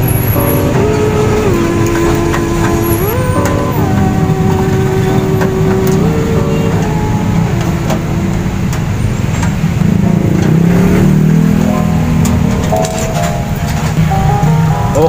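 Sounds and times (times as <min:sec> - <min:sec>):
heavy low rumble: 0:00.0 - 0:15.0
sustained melody line: 0:00.0 - 0:15.0.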